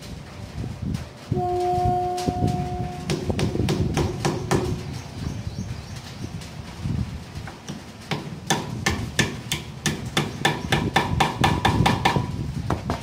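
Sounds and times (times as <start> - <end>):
hammer striking metal: 2.2 - 5.0, 7.7 - 12.3.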